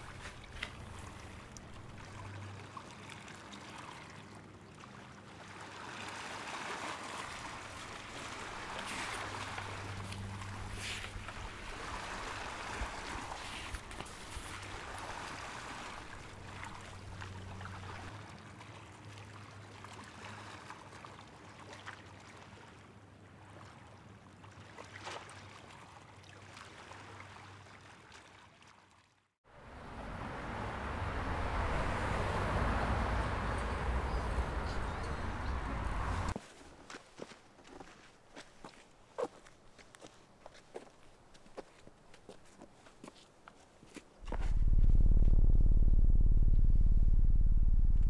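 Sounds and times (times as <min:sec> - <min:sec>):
waves washing: 0:00.0 - 0:04.1, 0:05.2 - 0:19.4, 0:29.5 - 0:36.4
street traffic rumble: 0:08.3 - 0:12.3, 0:16.0 - 0:18.1, 0:29.5 - 0:36.4, 0:44.2 - 0:48.0
steady low hum: 0:44.2 - 0:48.0.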